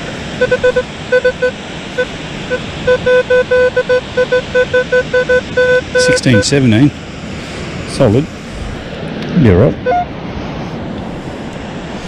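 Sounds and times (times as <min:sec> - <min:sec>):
steady background rush: 0:00.0 - 0:12.0
metal detector beeping: 0:00.4 - 0:06.6, 0:09.8 - 0:10.1.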